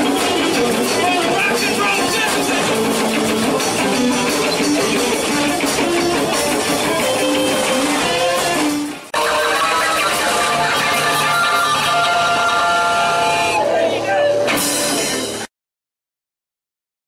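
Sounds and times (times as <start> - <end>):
electric guitar: 0.0 - 15.5
live rock and roll band: 0.0 - 15.5.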